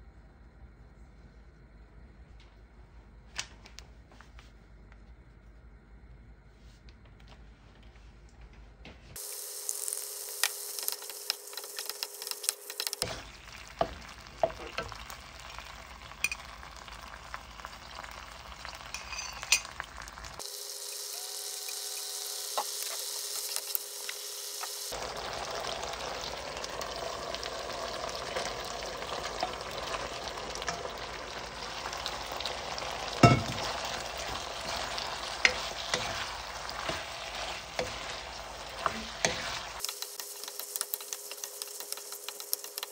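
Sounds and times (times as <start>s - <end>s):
food sizzling in a wok: 9.2s - 42.9s
wooden spatula scraping: 33.6s - 42.9s.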